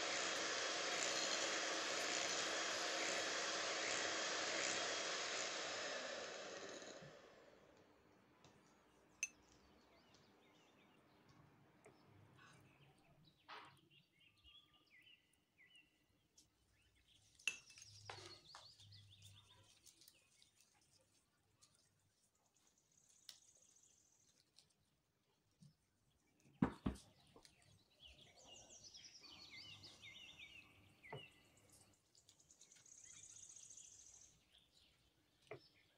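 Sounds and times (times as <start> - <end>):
electric hand mixer whipping cream: 0.0 - 7.7.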